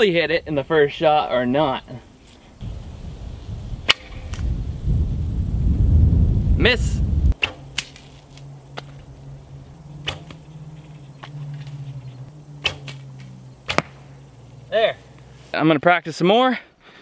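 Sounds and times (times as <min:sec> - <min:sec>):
bow string snap: 0:03.8 - 0:04.5, 0:07.4 - 0:09.0, 0:12.6 - 0:14.1.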